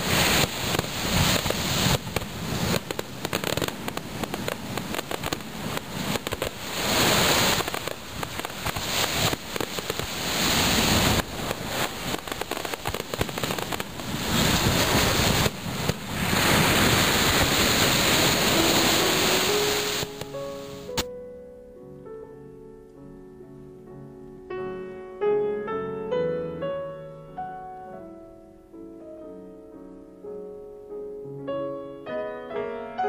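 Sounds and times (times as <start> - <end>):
firework bangs and crackles: 0.0 - 21.1.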